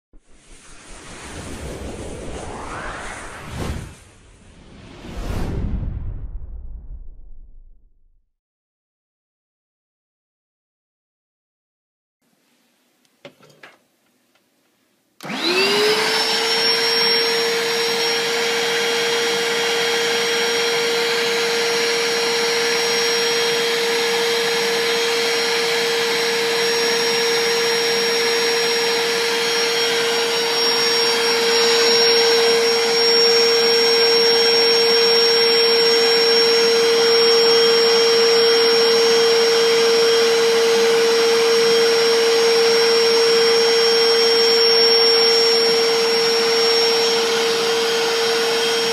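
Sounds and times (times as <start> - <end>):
suction rushing: 0.2 - 6.3
spot cleaner motor whining: 15.2 - 48.9.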